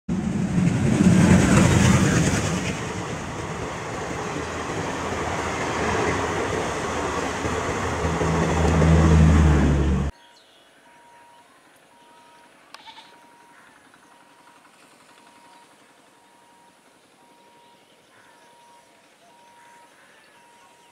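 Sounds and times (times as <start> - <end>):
train wheels rumbling on rails: 0.1 - 10.1.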